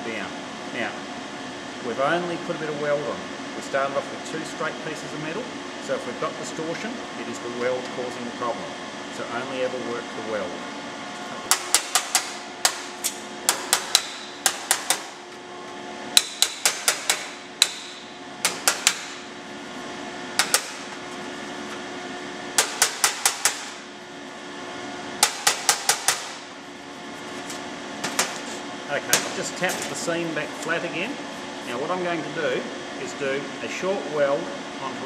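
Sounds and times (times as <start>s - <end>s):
hammer tapping sheet steel: 11.5s - 15.2s, 16.2s - 19.2s, 20.4s - 20.9s, 22.6s - 23.8s, 25.2s - 26.5s.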